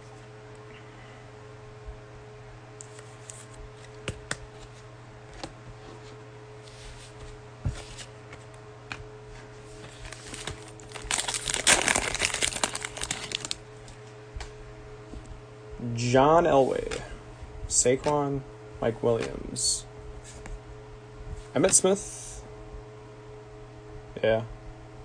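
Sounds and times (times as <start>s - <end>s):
foil wrapper crinkling and tearing: 9.8s - 13.7s.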